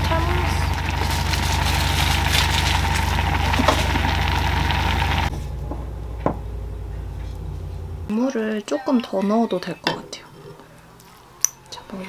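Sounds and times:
stew boiling and popping: 0:00.0 - 0:06.4
low hum: 0:00.0 - 0:08.2.

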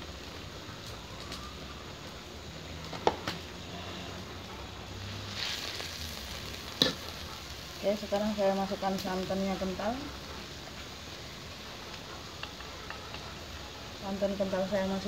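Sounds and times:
liquid simmering with low hiss: 0:00.0 - 0:15.0
spatula scraping wok: 0:05.0 - 0:07.7.

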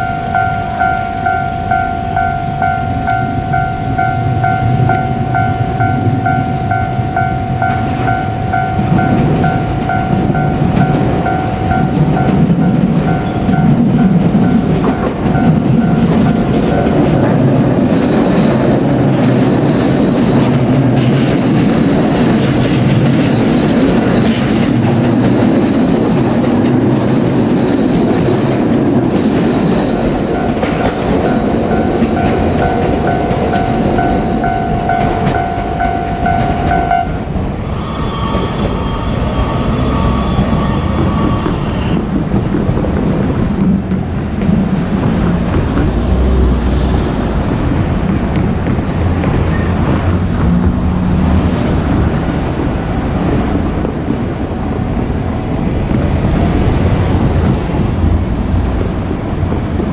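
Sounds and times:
higher-pitched tone: 0:00.0 - 0:20.6, 0:29.4 - 0:42.0
level crossing warning bell: 0:00.0 - 0:42.8
train wheels rumbling on rail: 0:00.0 - 0:59.9.

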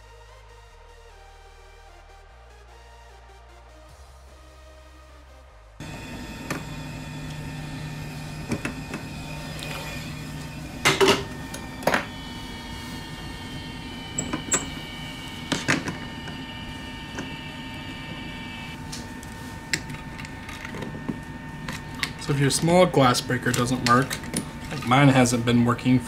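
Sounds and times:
electric hum: 0:05.1 - 0:26.0.

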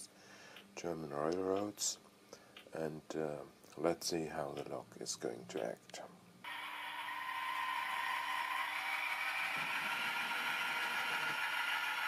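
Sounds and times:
model train motor whir: 0:06.5 - 0:12.0.

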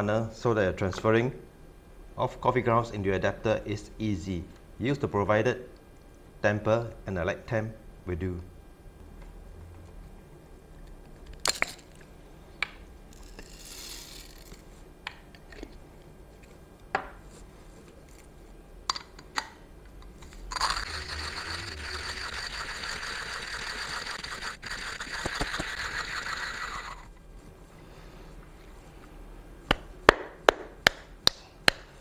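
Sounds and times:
manual coffee grinder grinding: 0:13.1 - 0:14.6, 0:20.5 - 0:27.1.

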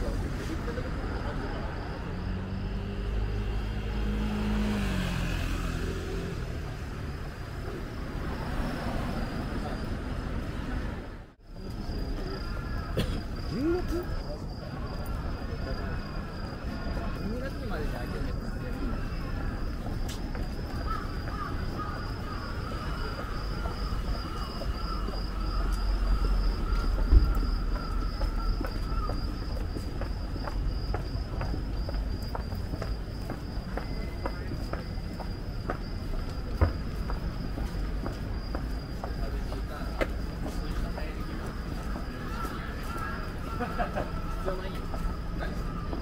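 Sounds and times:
vehicle passing by: 0:00.0 - 0:11.2
low traffic rumble: 0:00.0 - 0:46.0.

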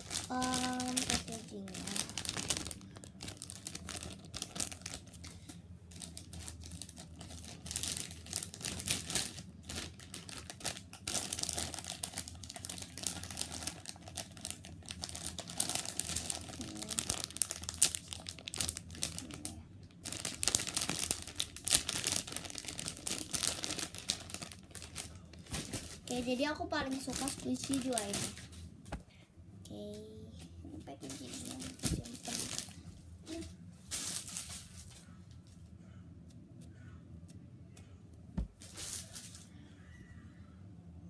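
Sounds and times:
plastic packaging crinkling: 0:00.0 - 0:05.3, 0:05.9 - 0:28.6, 0:31.0 - 0:35.1, 0:38.5 - 0:39.5.

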